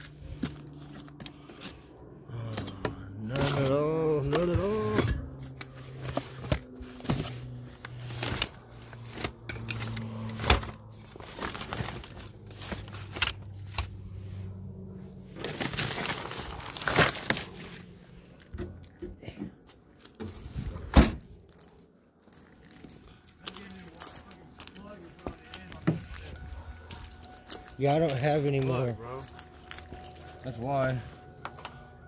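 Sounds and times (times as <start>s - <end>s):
plastic tools clattering: 3.3s - 13.9s.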